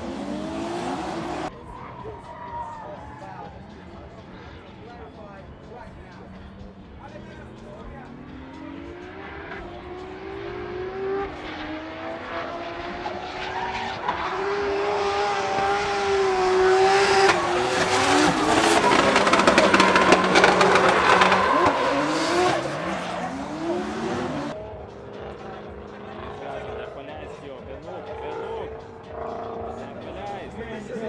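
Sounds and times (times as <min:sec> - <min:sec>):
car engine revving hard: 0:00.0 - 0:01.5, 0:08.3 - 0:24.6
rapid exhaust crackling: 0:14.2 - 0:26.6
tyre screech: 0:16.7 - 0:24.5.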